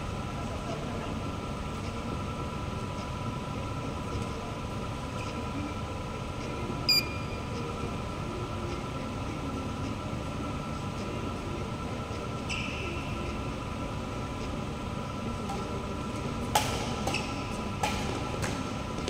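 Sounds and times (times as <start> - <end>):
indoor hall hum with whine: 0.0 - 19.0
sharp shoe squeak: 12.5 - 12.9.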